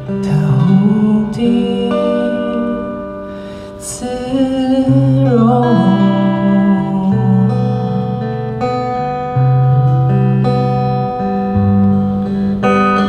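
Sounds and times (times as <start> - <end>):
man singing into a microphone: 0.0 - 8.5
fingerpicked acoustic guitar: 0.0 - 13.0.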